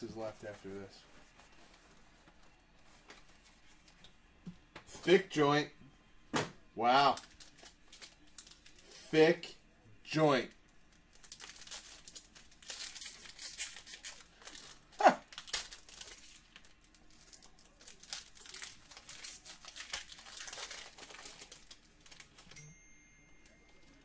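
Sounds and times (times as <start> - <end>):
foil wrapper crinkling and tearing: 7.0 - 9.0, 10.5 - 22.6.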